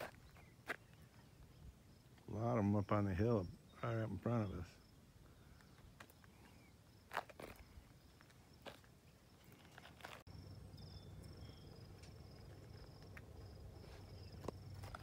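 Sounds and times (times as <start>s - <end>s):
high-pitched insect trill: 5.6s - 15.0s.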